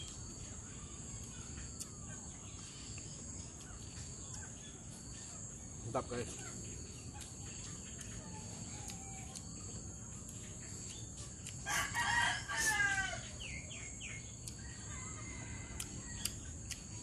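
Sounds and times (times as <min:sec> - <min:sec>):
insects droning: 0:00.0 - 0:17.0
rooster crowing: 0:11.6 - 0:13.5, 0:14.6 - 0:16.3.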